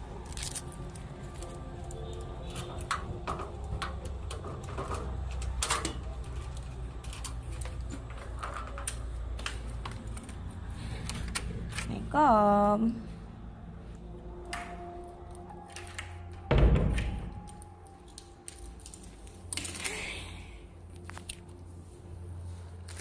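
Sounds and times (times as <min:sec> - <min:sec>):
keys jingling: 0:00.1 - 0:09.5, 0:17.2 - 0:20.2
steady low hum: 0:03.3 - 0:16.3.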